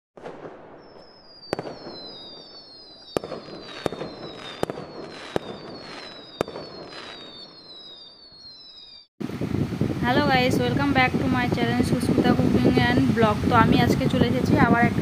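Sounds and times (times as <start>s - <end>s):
firework bangs: 0.2s - 9.1s
whistling rockets: 0.2s - 9.1s.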